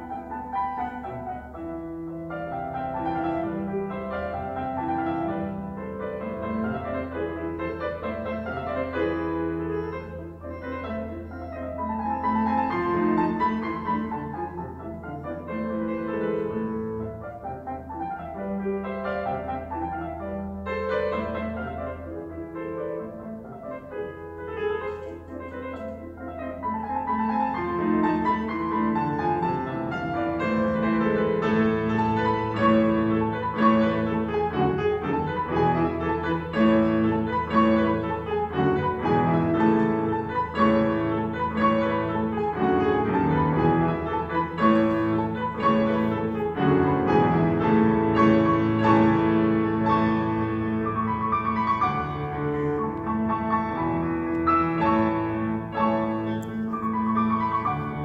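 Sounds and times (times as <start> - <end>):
classical solo piano piece: 0.0 - 58.0.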